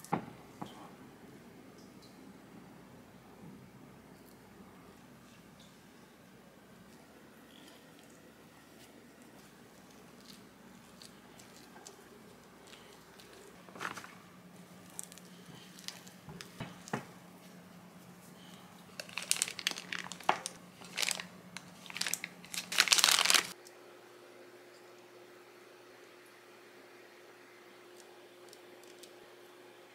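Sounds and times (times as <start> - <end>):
plastic piping bag crinkling: 9.3 - 17.0, 18.4 - 23.6.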